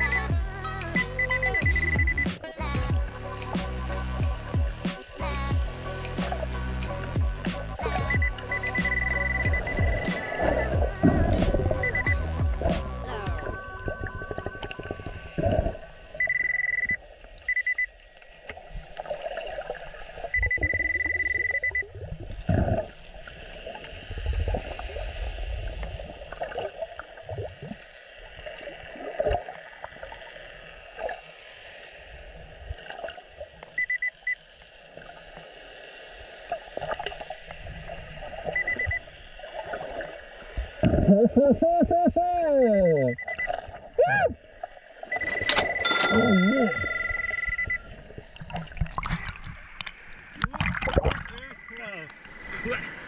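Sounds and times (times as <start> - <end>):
muffled water wash: 0.0 - 35.5
metal detector beeping: 1.1 - 2.4, 8.0 - 10.4, 11.6 - 12.4, 16.1 - 17.9, 20.3 - 21.9, 38.6 - 39.0, 42.7 - 43.6, 45.1 - 48.1.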